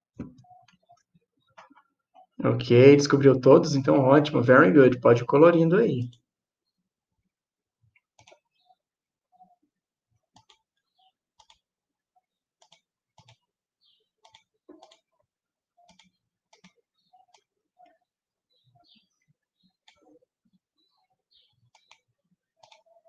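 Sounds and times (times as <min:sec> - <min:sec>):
faint irregular clicks: 0:10.3 - 0:10.8, 0:11.4 - 0:11.7, 0:12.6 - 0:13.4, 0:14.2 - 0:15.1, 0:15.8 - 0:18.0, 0:21.6 - 0:22.9.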